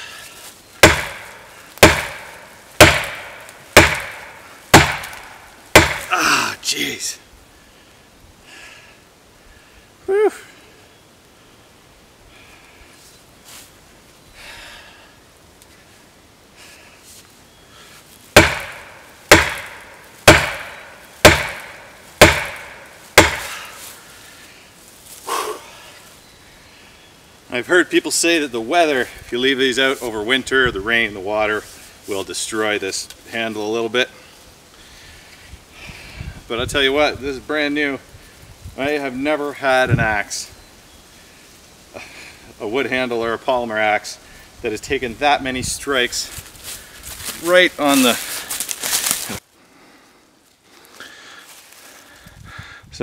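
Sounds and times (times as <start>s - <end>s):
axe striking tree trunk: 0.8s - 6.2s, 18.3s - 23.7s.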